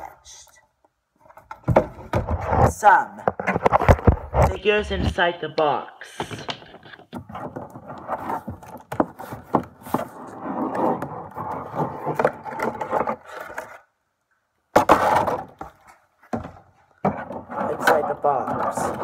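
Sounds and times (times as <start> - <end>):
cardboard scraping and rubbing: 6.7 - 13.9.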